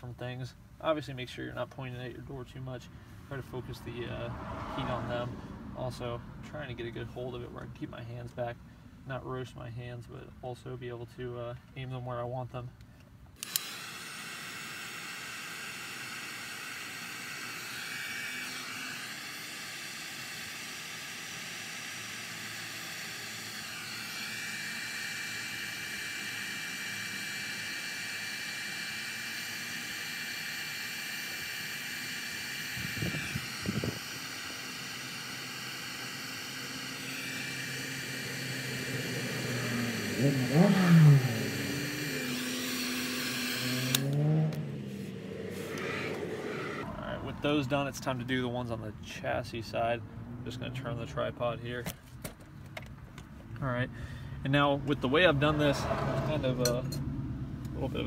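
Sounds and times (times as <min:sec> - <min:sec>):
heat gun fan whir and hiss: 0:11.5 - 0:48.4
heat gun switch click: 0:43.7 - 0:44.6.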